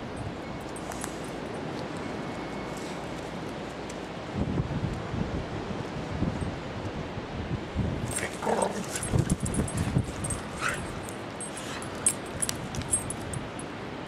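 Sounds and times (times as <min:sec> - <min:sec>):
dog vocalizing: 0:08.2 - 0:10.9.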